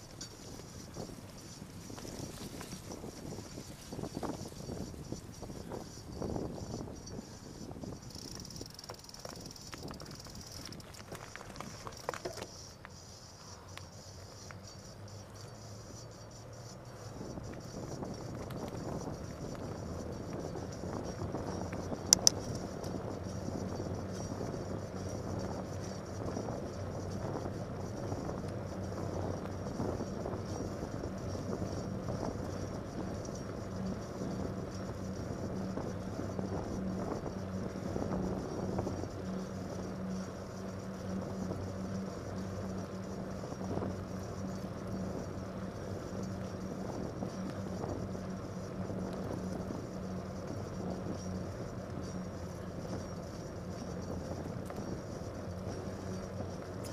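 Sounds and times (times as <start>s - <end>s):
bike tyres on wet pavement: 0.0s - 6.0s, 7.4s - 15.4s
low hum: 0.0s - 56.9s.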